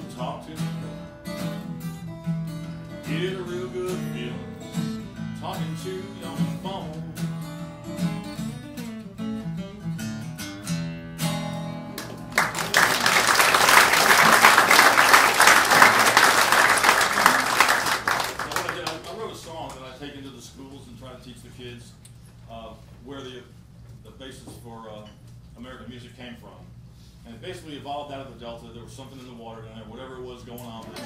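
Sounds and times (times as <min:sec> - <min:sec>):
solo blues guitar: 0:00.0 - 0:12.5
audience applauding: 0:12.0 - 0:19.8.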